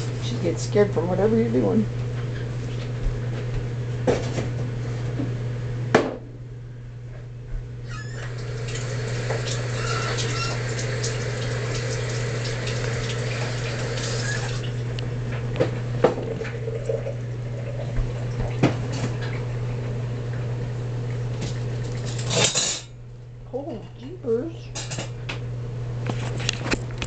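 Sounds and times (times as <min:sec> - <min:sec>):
tap water running into sink: 0:08.1 - 0:14.8, 0:16.1 - 0:19.4.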